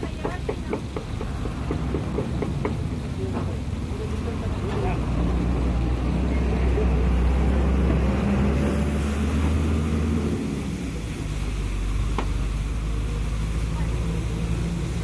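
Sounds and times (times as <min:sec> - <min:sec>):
sharp tap: 0:00.1 - 0:03.5, 0:12.1 - 0:12.4.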